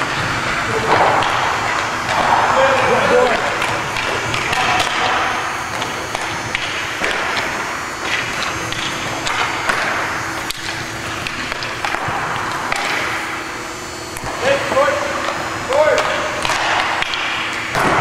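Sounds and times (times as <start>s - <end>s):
hockey skates scraping ice: 0.0s - 13.5s
hockey sticks clacking: 0.0s - 13.5s, 14.1s - 18.0s.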